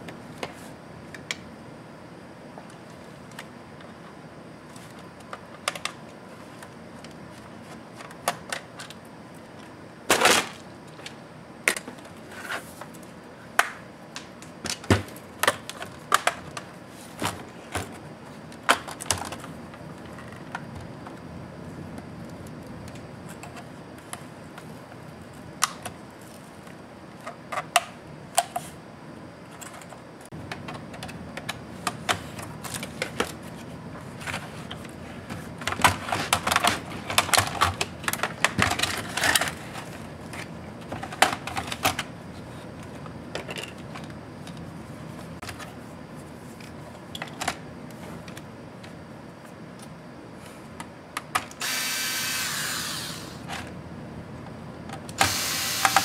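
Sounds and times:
electric screwdriver whining: 0:51.6 - 0:53.5, 0:55.2 - 0:56.0.

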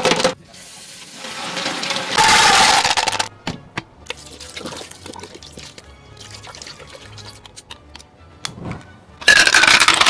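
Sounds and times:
shells clattering into a bowl: 0:02.5 - 0:03.3, 0:09.2 - 0:10.0
liquid pouring: 0:04.1 - 0:07.6
shells clicking in a pot: 0:09.3 - 0:10.0.

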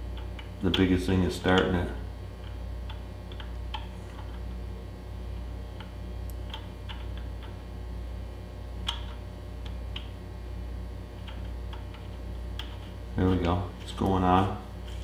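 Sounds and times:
steady low hum: 0:00.0 - 0:15.0
nut clicking on spindle: 0:08.8 - 0:10.1.

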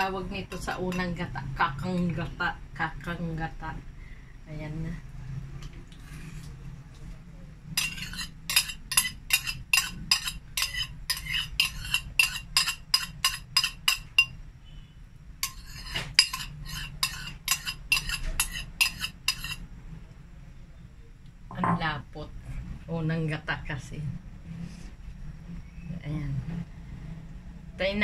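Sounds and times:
metal spoon scraping ceramic bowl: 0:07.8 - 0:14.4, 0:15.4 - 0:19.6.

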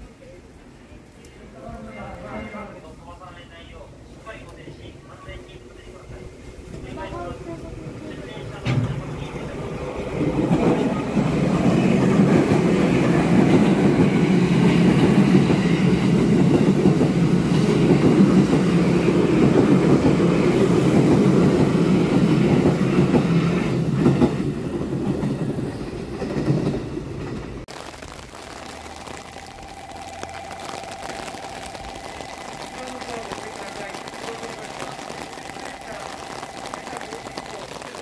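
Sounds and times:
train rumbling past: 0:01.6 - 0:27.7.

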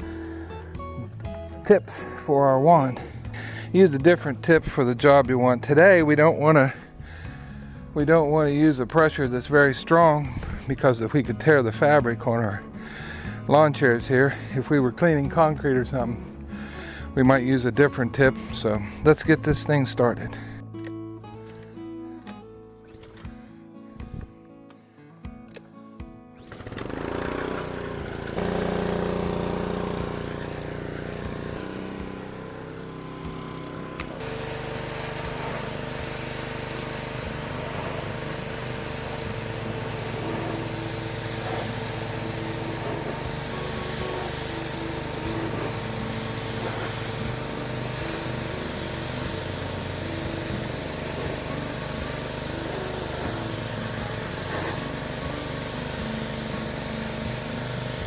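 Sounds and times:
small engine running: 0:00.0 - 0:19.3, 0:26.4 - 0:58.0
spray hissing on fabric: 0:34.2 - 0:57.9.

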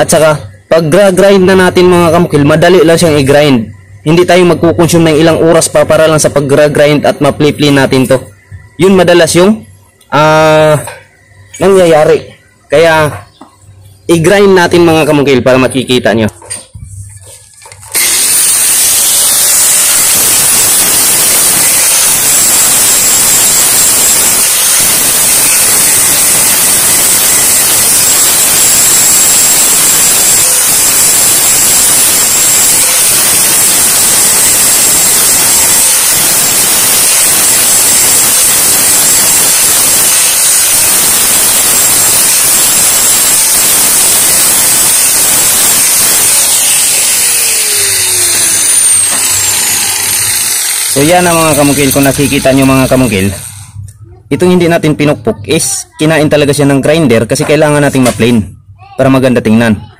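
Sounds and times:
angle grinder grinding steel: 0:16.5 - 0:53.8.

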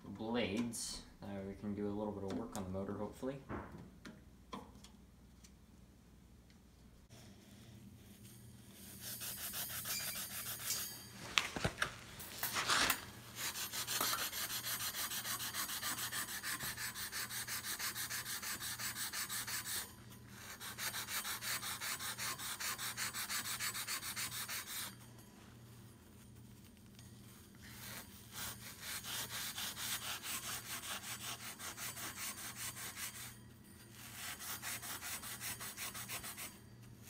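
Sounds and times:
steel wool scrubbing fan grille: 0:07.1 - 0:37.0
sharp metal scrapes and clinks: 0:08.2 - 0:14.9.

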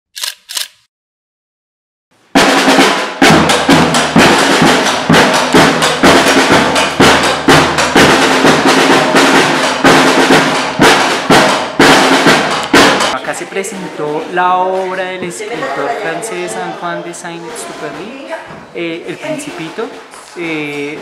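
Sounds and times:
drum-led music: 0:02.3 - 0:21.0.

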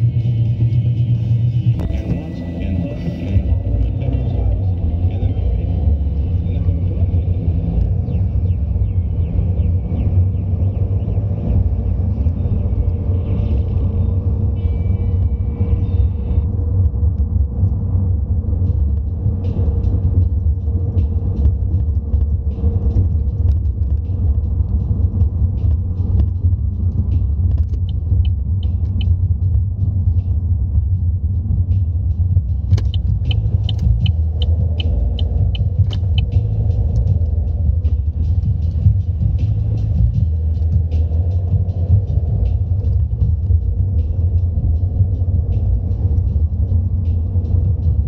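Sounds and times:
car engine and tyres rumble: 0:00.0 - 0:48.0
light regular ticks: 0:21.4 - 0:29.6, 0:32.5 - 0:48.0.

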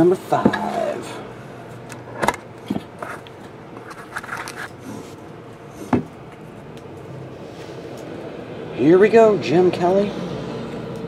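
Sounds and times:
metal tin scraping and rustling: 0:03.0 - 0:05.1.

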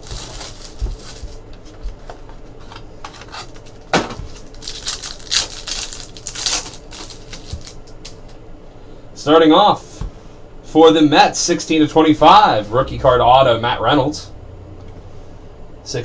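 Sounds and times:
foil pack crinkling and tearing: 0:00.0 - 0:08.2.

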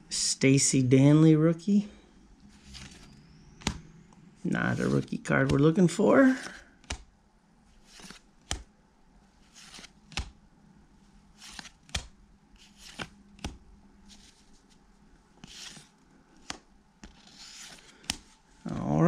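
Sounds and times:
cards sliding swishes: 0:02.5 - 0:03.9, 0:06.3 - 0:07.1, 0:07.7 - 0:08.7, 0:09.4 - 0:10.4, 0:11.3 - 0:14.8, 0:15.4 - 0:18.9.

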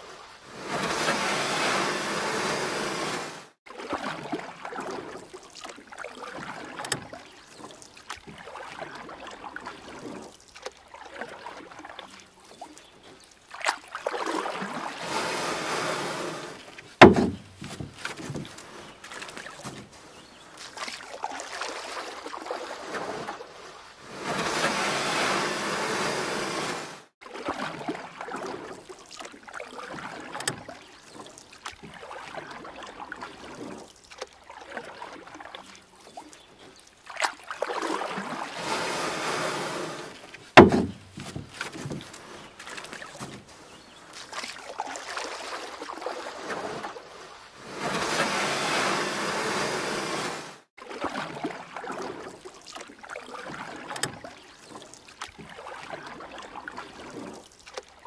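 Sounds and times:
paddle splashing water: 0:00.0 - 0:58.0
sharp knock: 0:17.0 - 0:17.5, 0:40.6 - 0:41.1.

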